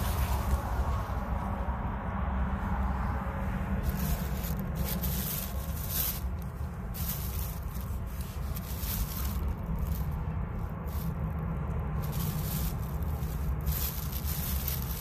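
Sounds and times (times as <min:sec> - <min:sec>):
low rumble: 0:00.0 - 0:15.0
plastic bag rustling: 0:03.8 - 0:15.0.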